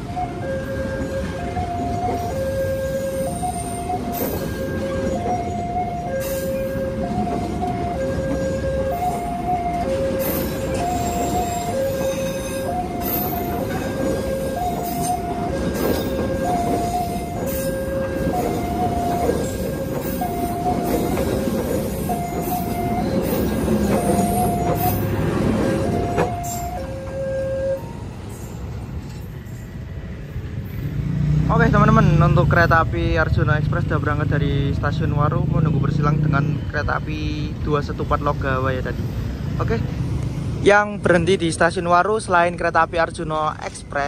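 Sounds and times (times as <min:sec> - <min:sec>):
train wheels rumbling on rails: 0:00.0 - 0:44.0
level crossing alarm two-tone: 0:00.1 - 0:28.1.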